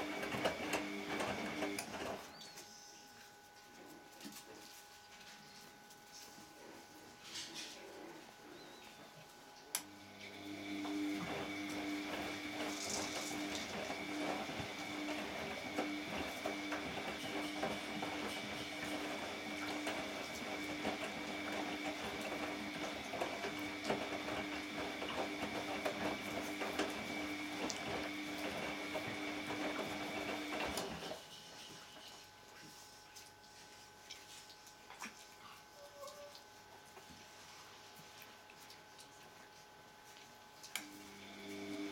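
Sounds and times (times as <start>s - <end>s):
machine whine: 10.0s - 30.9s.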